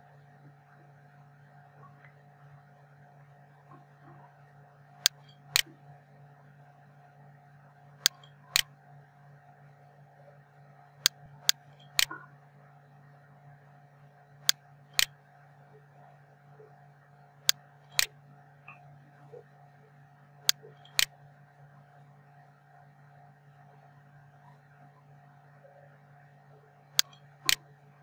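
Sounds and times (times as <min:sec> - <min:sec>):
low electrical hum: 0:00.0 - 0:28.0
computer mouse clicking: 0:11.0 - 0:12.2, 0:20.5 - 0:21.1.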